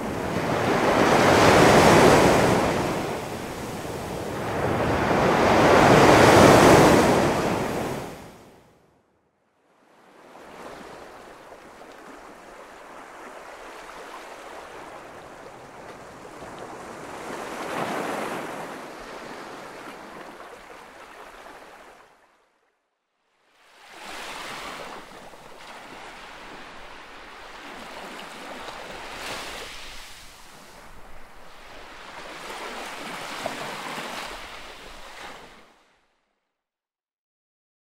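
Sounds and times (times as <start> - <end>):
ocean waves washing in: 0.0 - 8.6, 23.7 - 35.8.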